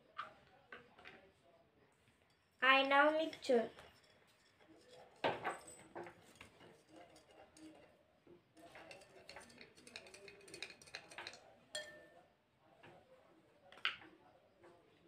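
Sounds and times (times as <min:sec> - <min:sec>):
spoon clinking against glass: 0:08.6 - 0:12.2.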